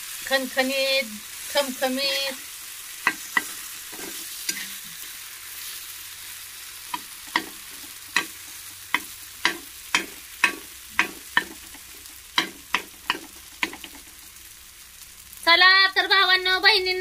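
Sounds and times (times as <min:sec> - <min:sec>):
food sizzling in oil: 0:00.0 - 0:17.0
metal spoon clacking on pan: 0:03.0 - 0:04.7, 0:06.9 - 0:14.1.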